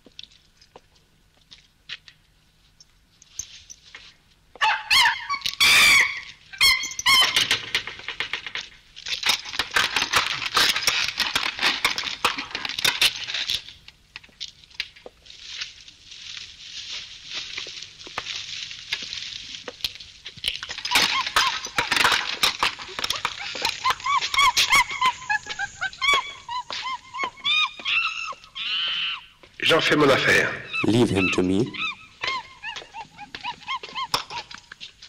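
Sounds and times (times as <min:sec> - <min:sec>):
high-pitched animal cry: 0:04.6 - 0:07.7, 0:20.7 - 0:34.7.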